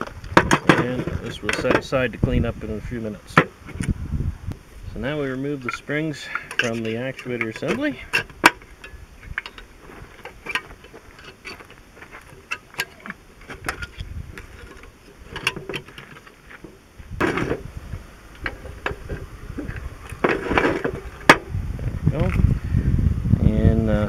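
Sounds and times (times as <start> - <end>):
steel parts clinking: 5.2 - 17.6
screwdriver clicking and scraping metal: 5.6 - 16.7.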